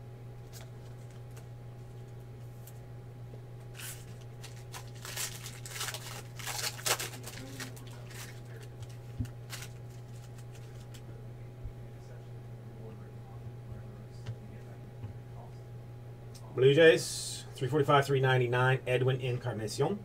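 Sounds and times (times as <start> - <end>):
steady low hum: 0.0 - 20.0
foil wrapper crinkling and tearing: 3.7 - 11.0.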